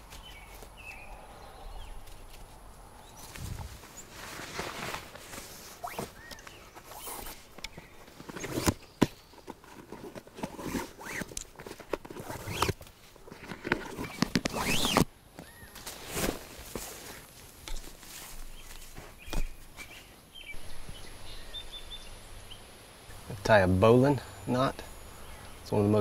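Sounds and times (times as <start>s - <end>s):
rustling of grass and clothing: 0.0s - 26.0s
bootlace scraping through eyelets: 3.2s - 15.1s.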